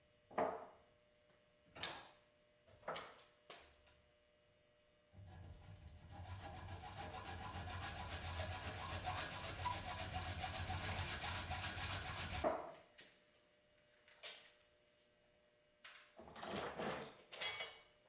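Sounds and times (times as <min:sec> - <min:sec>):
hacksaw cutting metal tubing: 0:05.2 - 0:12.4.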